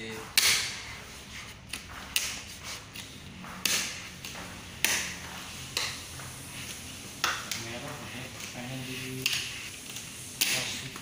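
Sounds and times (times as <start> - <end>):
squeegee sweeping over film: 0.7 - 11.0.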